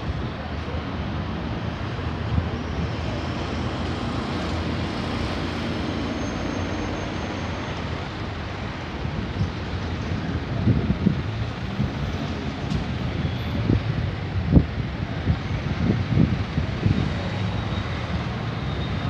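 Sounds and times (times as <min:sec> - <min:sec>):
distant city traffic rumble: 0:00.0 - 0:19.0
wind buffeting microphone: 0:08.9 - 0:17.3.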